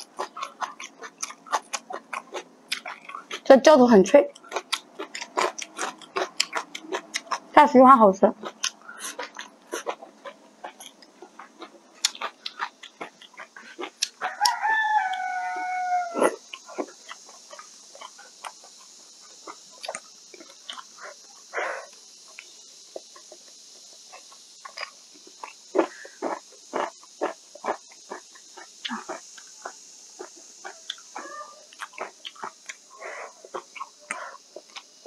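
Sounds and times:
chewing clicks: 0.0s - 3.5s, 4.3s - 7.5s, 8.4s - 15.3s, 16.2s - 35.0s
rooster crowing: 14.1s - 16.5s.

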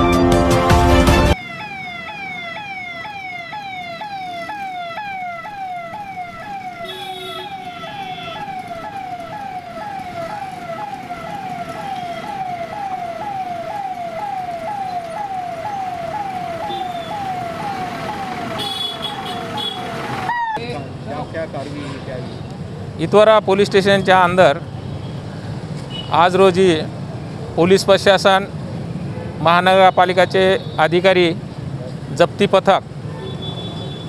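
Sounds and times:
street traffic noise: 0.0s - 34.0s
electronic police siren: 1.3s - 20.7s.

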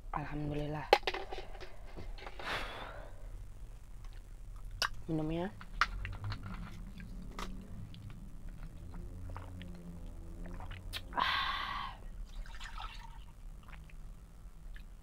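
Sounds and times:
mouth and swallowing sounds: 6.0s - 11.2s, 13.5s - 15.0s.

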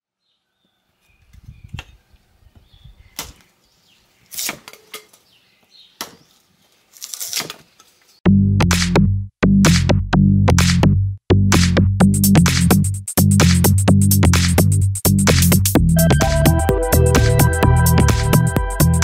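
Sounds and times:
electronic music with heavy beat: 8.3s - 19.0s.

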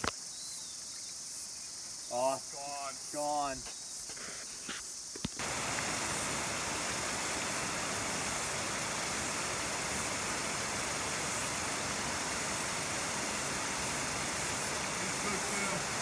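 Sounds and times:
river water rushing over stones: 5.4s - 16.0s.

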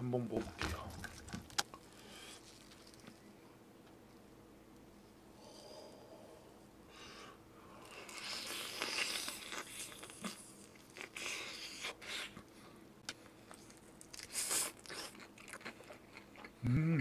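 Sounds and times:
crunchy chewing of fried food: 0.6s - 3.3s, 7.7s - 16.6s.

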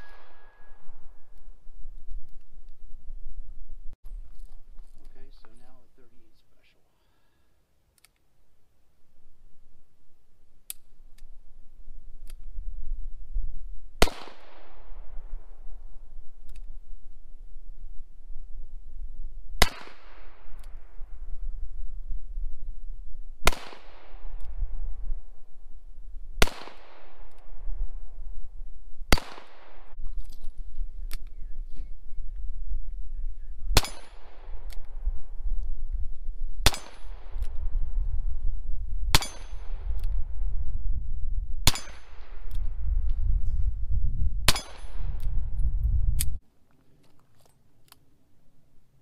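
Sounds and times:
low rumble: 24.0s - 46.4s
bullets clanking on steel: 39.2s - 39.7s.

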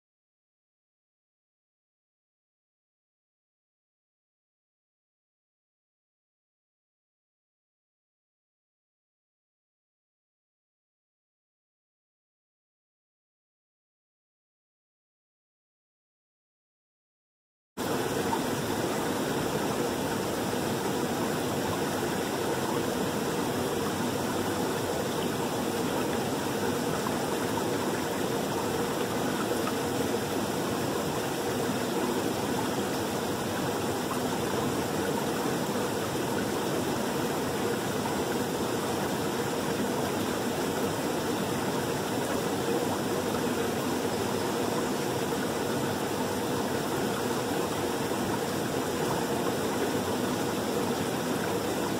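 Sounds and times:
water running over rocks: 17.8s - 51.9s.

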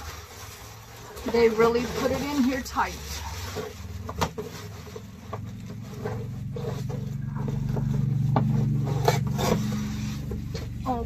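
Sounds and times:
packaging rustling and scraping: 0.0s - 11.0s
low hum: 4.6s - 11.0s.

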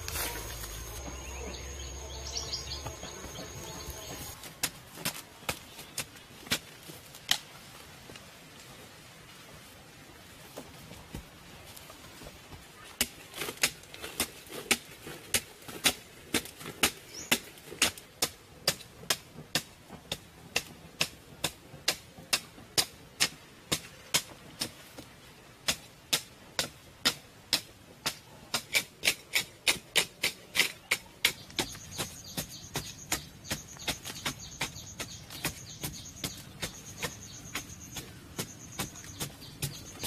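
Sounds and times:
digging tool striking hard ground: 25.7s - 40.0s.

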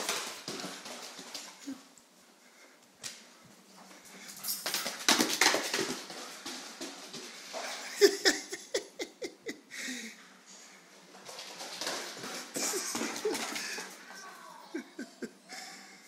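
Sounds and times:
dog claws scrabbling on wood floor: 4.2s - 7.7s.

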